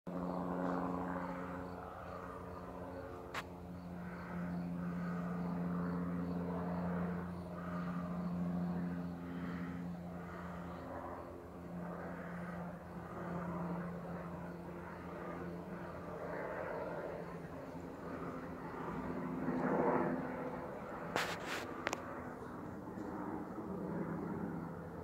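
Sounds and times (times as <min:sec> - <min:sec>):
helicopter engine and rotor drone: 0:00.1 - 0:25.0.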